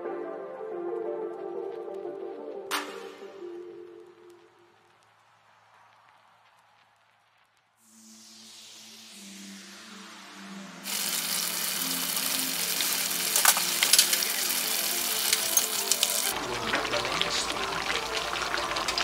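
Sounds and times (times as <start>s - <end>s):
soft background music: 0.0s - 4.9s, 9.2s - 19.0s
meat sizzling in a skillet: 10.9s - 19.0s.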